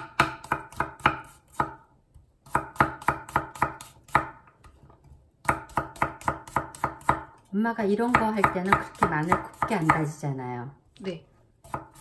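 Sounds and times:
knife chopping on wooden board: 0.0 - 4.5, 5.4 - 7.5, 8.1 - 10.1, 11.6 - 12.0.

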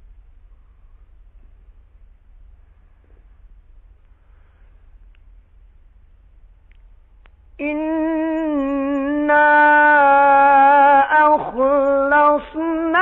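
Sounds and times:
man reciting melodically: 7.6 - 13.0.

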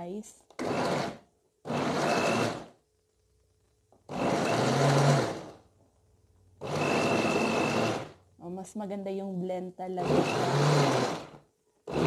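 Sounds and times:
electric blender chopping: 0.6 - 2.7, 4.1 - 5.6, 6.6 - 8.2, 10.0 - 12.0.

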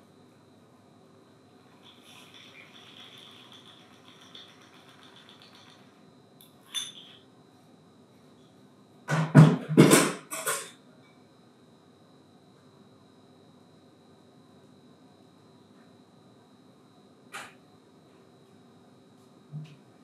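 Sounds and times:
glass clink: 6.7 - 7.2.

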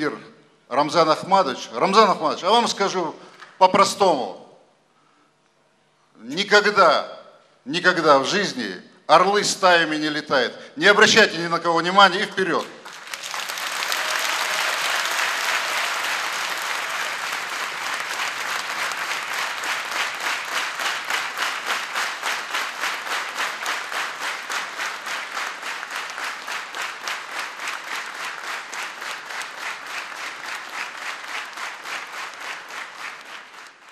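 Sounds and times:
rhythmic clapping in unison: 12.5 - 33.9
audience applauding: 12.8 - 33.9.

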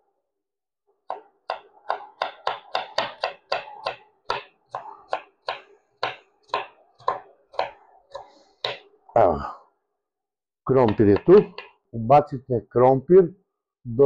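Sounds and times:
knife chopping on wooden board: 1.0 - 8.9, 10.8 - 11.8.

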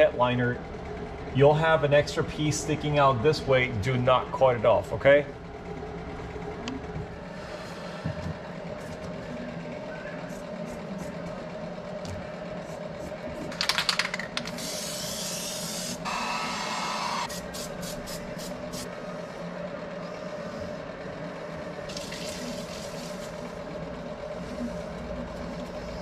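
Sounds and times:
steady hum: 0.0 - 26.0
aerosol can rattling: 13.5 - 15.4
aerosol spray hissing: 14.6 - 18.9.

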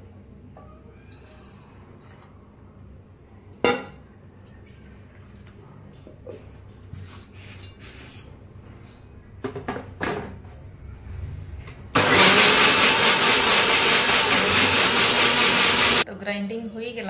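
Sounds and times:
mixer grinder running: 12.0 - 16.0.

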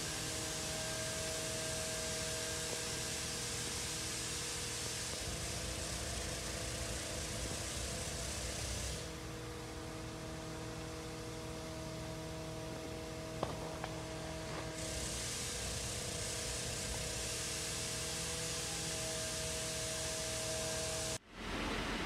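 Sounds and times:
fire engine pump droning: 0.0 - 21.8
water spray hissing: 2.1 - 9.2, 13.8 - 21.2.

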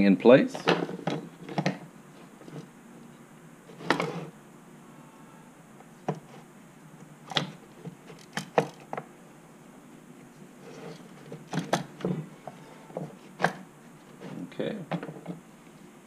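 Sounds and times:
rustling scrape: 2.1 - 2.7, 3.7 - 4.4, 10.4 - 11.5, 14.0 - 14.6
plastic parts clicking and knocking: 7.3 - 9.1.

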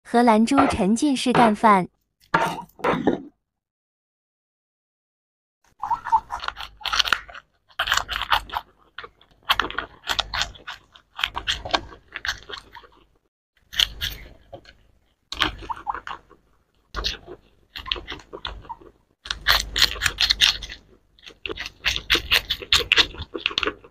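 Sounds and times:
guinea pigs chewing crunchily: 5.7 - 23.9.

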